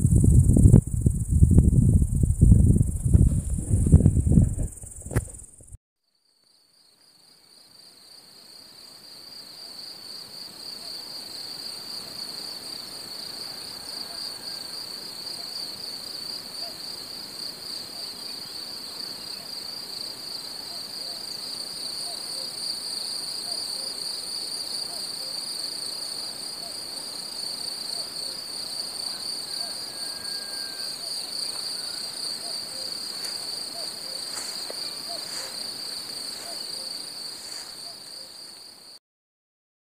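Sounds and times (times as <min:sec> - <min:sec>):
cicadas chorus: 0:00.0 - 0:05.8, 0:06.6 - 0:39.0.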